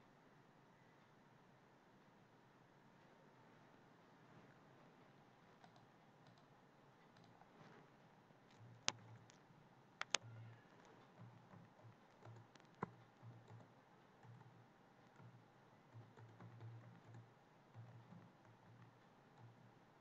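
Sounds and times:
faint low hum: 0.0 - 20.0
computer keyboard typing: 5.6 - 6.5, 7.1 - 7.4, 10.0 - 19.6.

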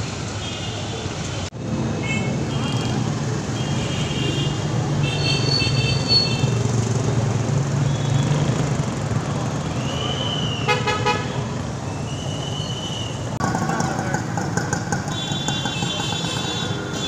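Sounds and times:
cars and motorcycles passing: 0.0 - 17.0
car horn toots: 10.7 - 11.4, 15.1 - 17.0.

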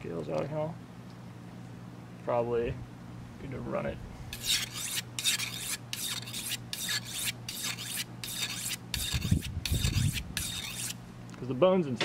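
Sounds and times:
knife rasping on sharpening stone: 4.3 - 11.0.

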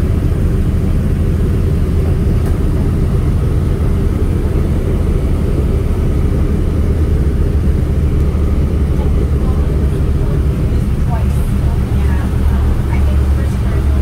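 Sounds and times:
airplane engines rumbling: 0.0 - 14.0.

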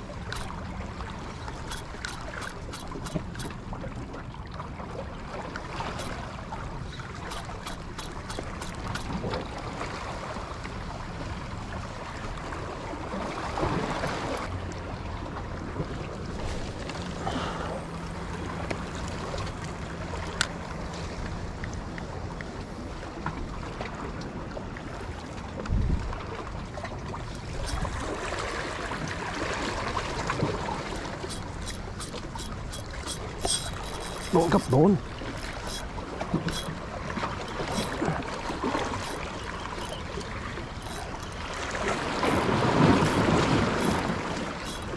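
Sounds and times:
waves washing: 0.0 - 44.9
wind: 0.0 - 44.9
short high clicks: 31.0 - 36.8.

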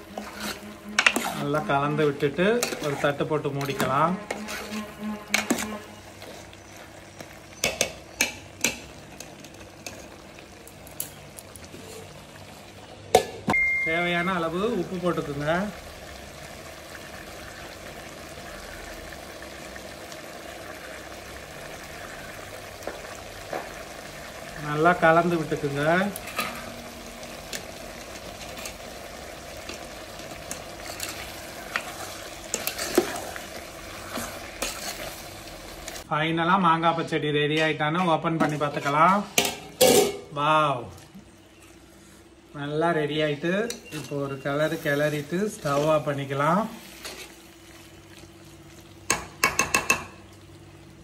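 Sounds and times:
ladle stirring thick food in pot: 0.0 - 10.2, 28.0 - 36.1
pot sizzling: 0.0 - 37.1, 38.2 - 51.0.

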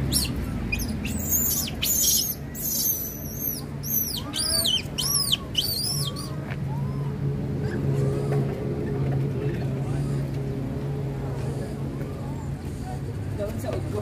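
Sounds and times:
high-pitched animal calls: 0.1 - 7.1.

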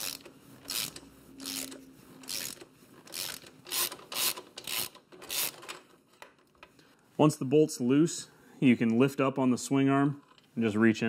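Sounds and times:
socket ratchet clicking: 0.0 - 5.8.

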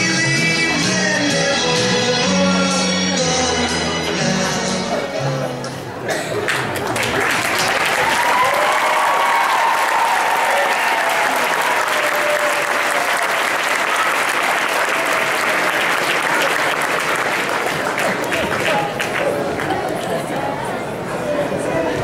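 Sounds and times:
audience clapping: 6.4 - 20.2
people shouting and whooping: 7.8 - 13.5.

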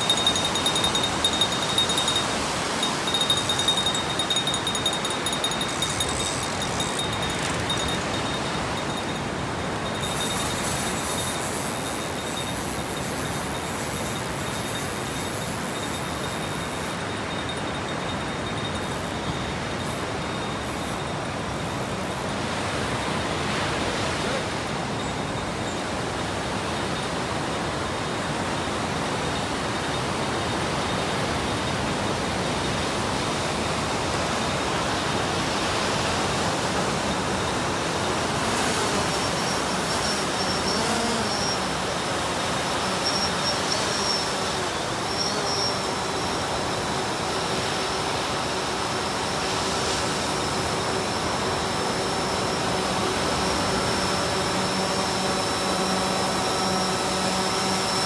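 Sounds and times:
drone propellers whining: 0.0 - 21.9.

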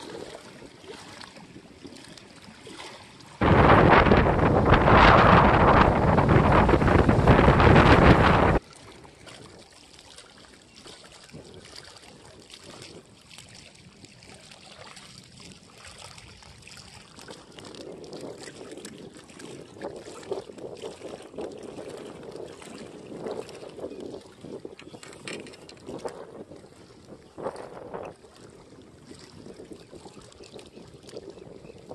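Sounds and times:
lake water lapping: 0.0 - 31.9
wind buffeting microphone: 3.4 - 8.6, 16.3 - 31.9.

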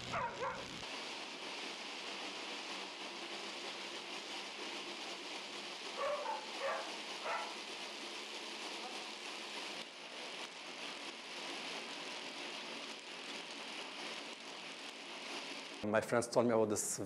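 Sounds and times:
background hiss: 0.0 - 17.0
dog barking: 0.1 - 0.7, 6.0 - 7.6.

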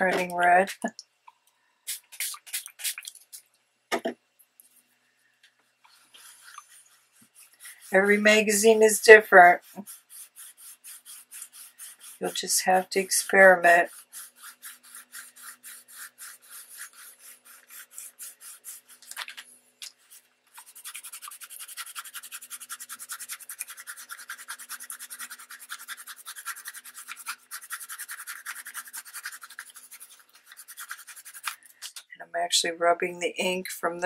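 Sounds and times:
cloth rubbing on paper: 5.9 - 19.2, 20.0 - 31.6.

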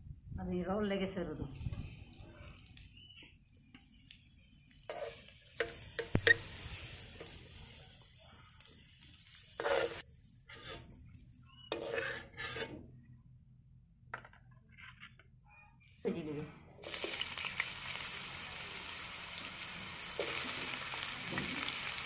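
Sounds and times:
slices sizzling in hot oil: 1.5 - 12.8, 16.8 - 22.0
metal ladle clinking and scraping: 9.6 - 12.9.

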